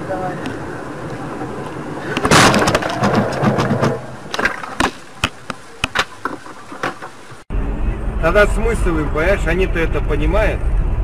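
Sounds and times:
vehicle crash: 2.1 - 5.1
sharp clicks and knocks: 2.2 - 7.4.

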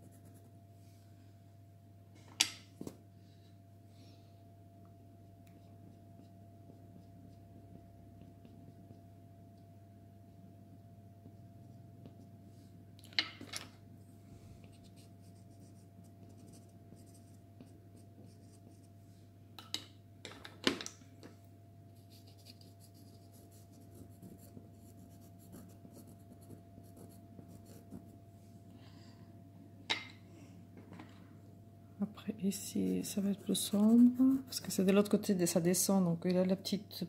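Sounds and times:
pastel scratching on card: 22.0 - 28.1, 32.6 - 34.8.

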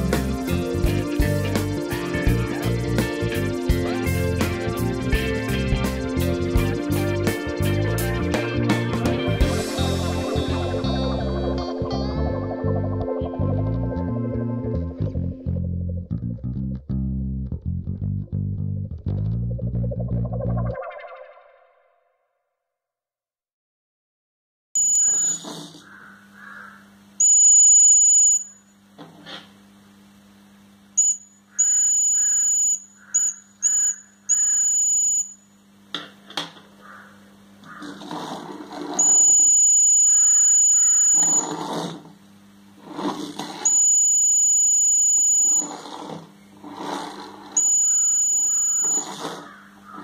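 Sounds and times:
low steady hum: 0.0 - 21.2
buzzer beeping high tone: 24.8 - 25.5, 27.2 - 28.7, 31.0 - 35.5, 39.0 - 41.5, 43.6 - 45.9, 47.6 - 49.4.

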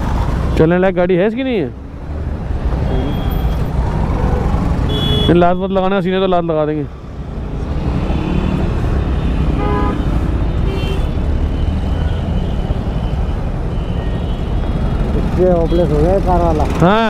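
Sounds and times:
vehicle horn honking: 4.9 - 5.6, 9.2 - 11.2.

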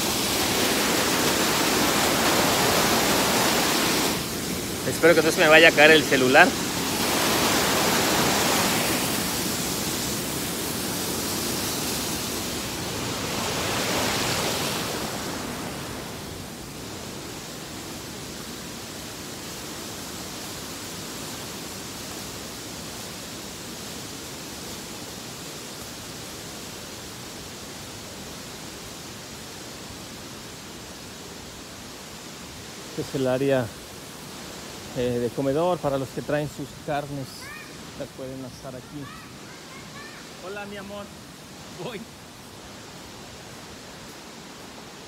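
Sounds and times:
stream water rushing over rocks: 0.0 - 45.0.

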